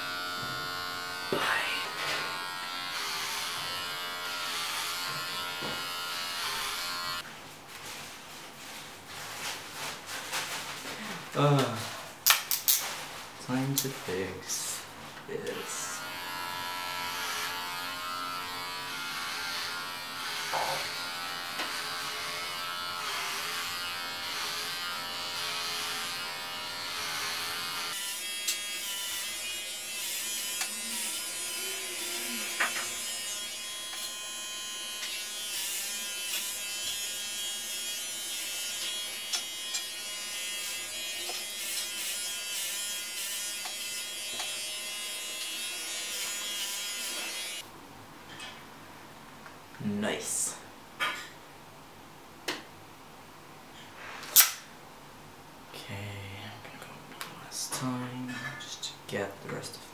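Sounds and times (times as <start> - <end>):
electric hair clippers buzzing: 0.0 - 7.2, 15.5 - 47.6.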